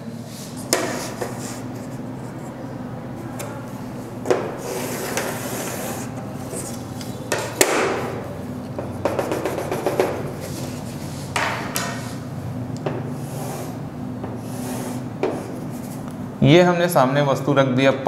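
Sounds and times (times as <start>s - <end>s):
chalk scraping on chalkboard: 0.3s - 2.6s, 4.5s - 6.8s, 9.0s - 12.2s, 13.1s - 16.1s
quick chalk taps: 0.7s - 1.4s, 8.8s - 10.7s
ruler knocking against board: 9.0s - 10.2s, 11.4s - 12.0s.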